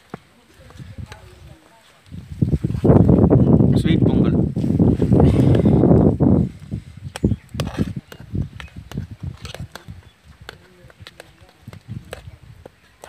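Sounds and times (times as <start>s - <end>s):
ladle stirring rice in pot: 7.4s - 13.0s.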